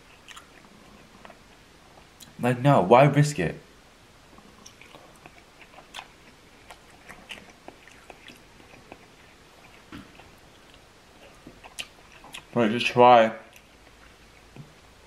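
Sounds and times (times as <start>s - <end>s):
mouth chewing crab meat: 0.0s - 1.4s, 4.6s - 12.6s.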